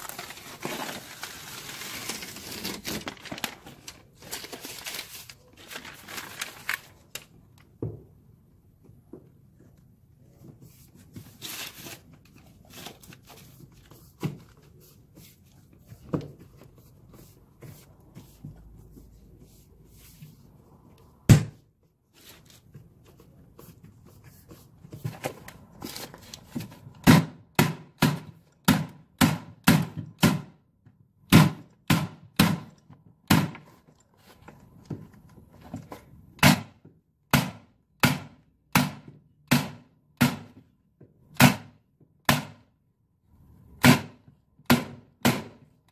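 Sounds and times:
rustling: 0.0 - 7.3.

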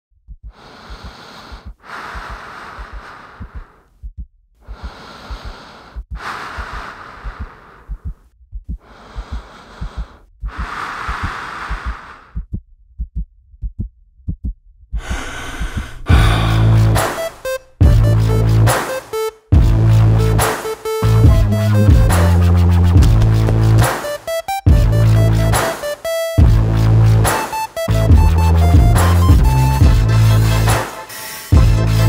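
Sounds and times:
heartbeat thumping: 0.2 - 18.7, 19.5 - 20.4, 21.0 - 27.0, 27.9 - 30.2, 31.6 - 32.0
heavy deep breathing: 0.4 - 3.9, 4.6 - 12.5, 15.0 - 18.0
electronic music with heavy bass: 15.8 - 32.0.

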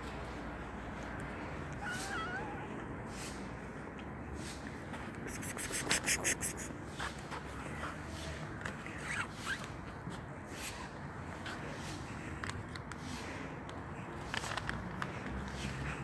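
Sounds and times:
cat meowing: 1.7 - 2.8.

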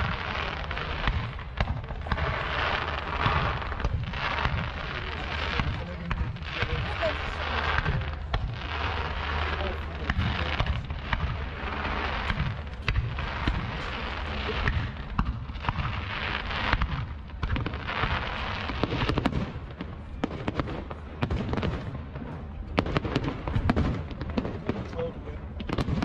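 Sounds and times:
fireworks bangs: 0.0 - 26.0
fireworks crackling: 0.0 - 26.0.

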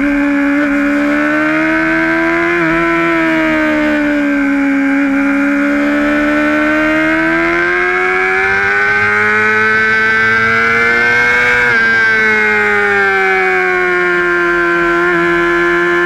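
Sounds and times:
motorcycle engine accelerating: 0.0 - 16.0.

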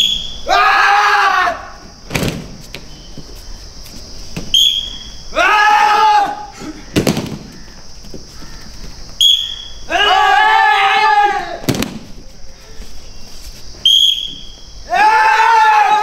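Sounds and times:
short high whistle blast: 0.0 - 0.4, 4.5 - 5.1, 9.2 - 9.8, 13.8 - 14.6
bodies slapping mats: 1.8 - 4.6, 7.0 - 9.2, 11.6 - 12.9
group shouting: 5.3 - 6.5, 9.9 - 11.7, 14.9 - 16.0.

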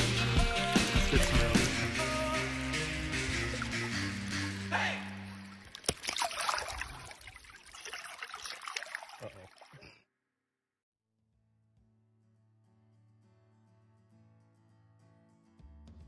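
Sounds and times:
background music: 0.0 - 5.7
water trickling and splashing: 0.6 - 1.9, 3.2 - 10.0.

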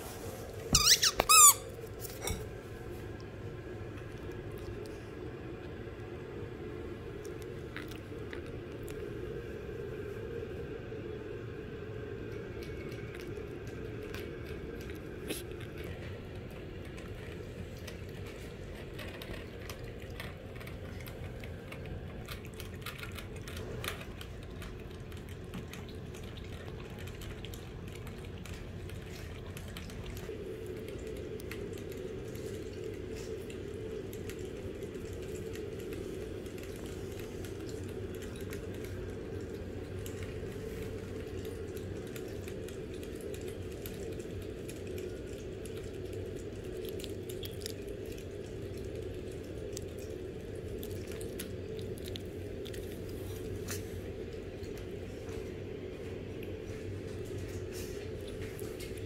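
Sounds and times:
steady low hum: 0.0 - 59.0
small wet clicks: 12.3 - 59.0
dog licking and drinking: 12.4 - 59.0.

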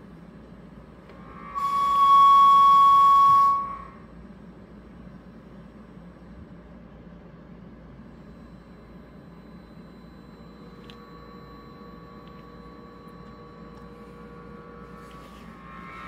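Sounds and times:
low hum: 0.0 - 7.0, 7.9 - 16.0
faint held electronic tones: 8.1 - 16.0.

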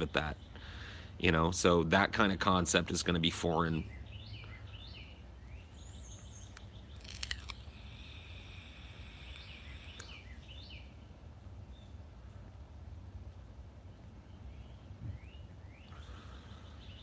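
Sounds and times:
small birds chirping: 0.0 - 12.7, 13.8 - 17.0
faint hiss: 6.3 - 10.8
faint clicks: 9.3 - 10.2.

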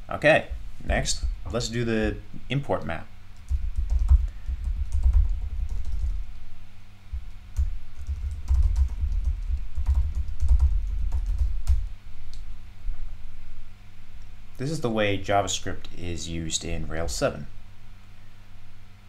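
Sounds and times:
keyboard typing: 3.4 - 6.3, 7.2 - 11.9.

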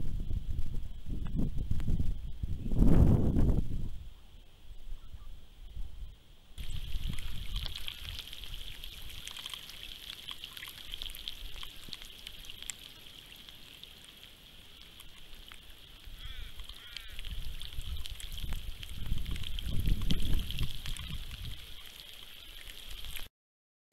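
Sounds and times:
wind gusting on microphone: 0.0 - 9.3, 16.0 - 21.8
water ticks and trickles: 6.6 - 23.3.

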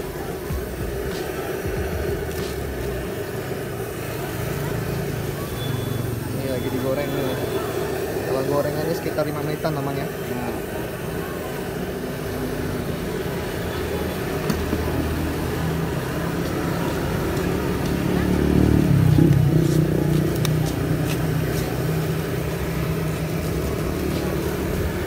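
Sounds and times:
vehicle engine passing: 12.4 - 25.0.

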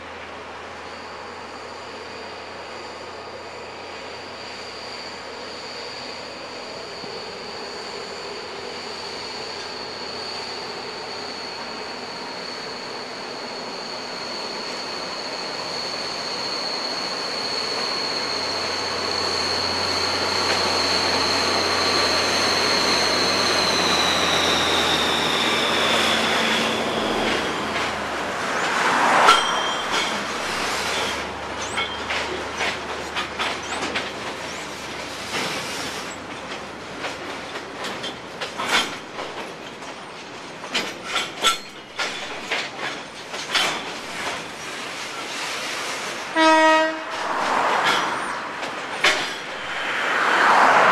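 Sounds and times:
wheel flanges squealing: 0.8 - 50.9
wheels clunking over rail joints: 25.6 - 45.6.

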